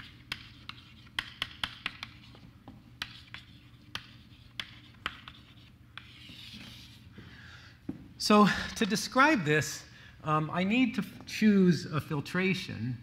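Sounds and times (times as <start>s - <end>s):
chalk tapping on a blackboard: 0.0s - 7.0s
low room hum: 0.0s - 13.0s.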